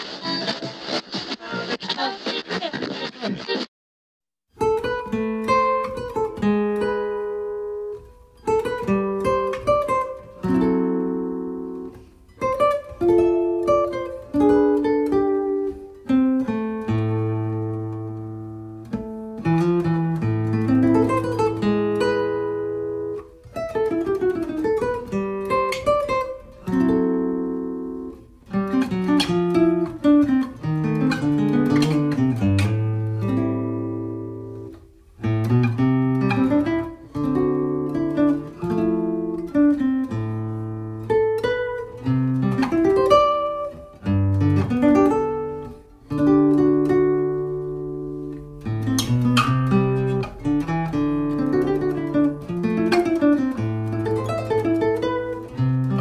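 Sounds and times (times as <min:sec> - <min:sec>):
acoustic guitar playing: 0:00.0 - 0:03.6, 0:04.5 - 0:56.0.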